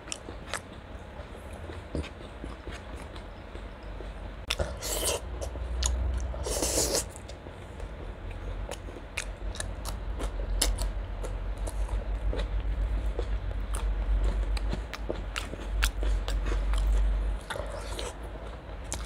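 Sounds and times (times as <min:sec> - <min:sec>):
slurping: 0:06.4 - 0:07.2.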